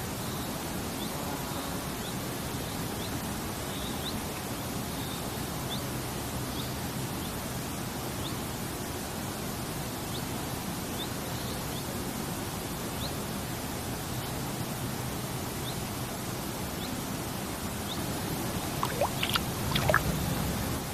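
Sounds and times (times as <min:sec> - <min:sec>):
shallow river water rushing: 0:18.2 - 0:20.9
plops and splashes in water: 0:18.7 - 0:20.2
faint high chirps: 0:18.8 - 0:20.0.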